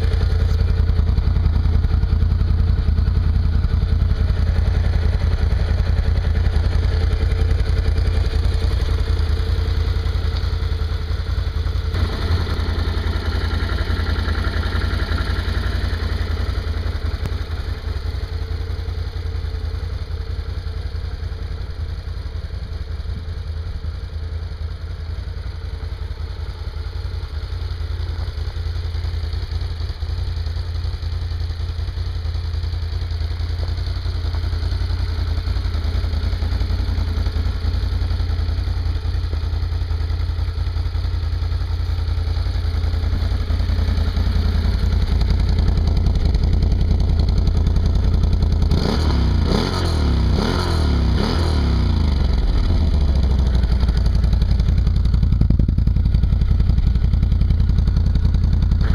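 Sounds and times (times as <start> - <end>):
quad bike engine idling: 0.0 - 58.9
engine revving: 48.6 - 53.0.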